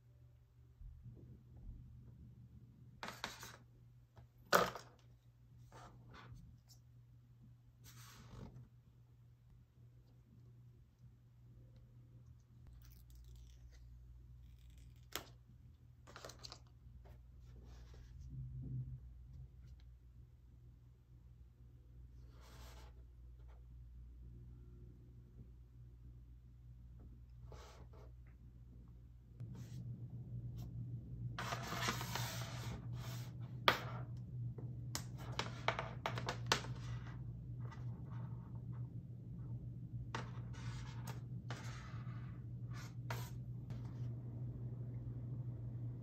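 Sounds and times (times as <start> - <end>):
steady low hum: 0.0 - 46.0
rubbing and scraping on a tabletop: 3.0 - 3.7, 7.8 - 8.7, 16.1 - 18.4, 22.2 - 23.6, 27.4 - 28.2, 31.4 - 34.0, 40.1 - 44.0.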